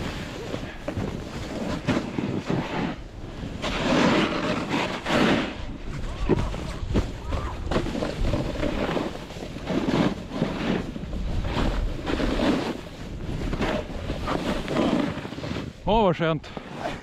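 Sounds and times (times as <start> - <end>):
skis hissing through snow: 0.0 - 6.9, 8.0 - 15.8
wind rushing over microphone: 0.0 - 15.8.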